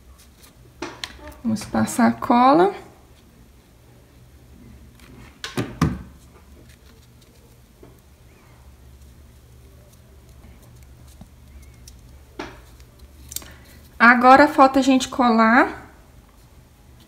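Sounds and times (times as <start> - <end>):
low steady hum: 0.0 - 17.0
ribbon handling: 4.9 - 14.0.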